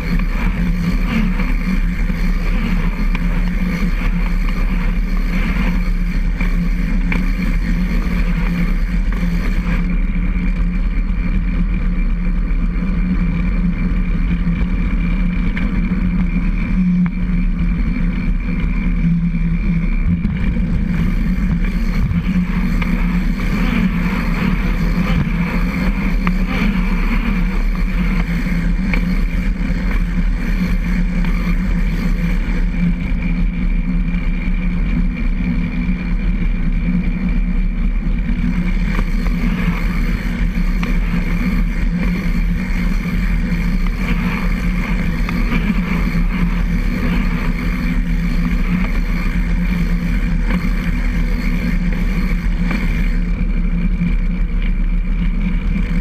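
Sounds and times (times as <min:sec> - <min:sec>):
trike rolling on concrete: 0:00.0 - 0:56.0
thin steady tone: 0:37.6 - 0:53.4.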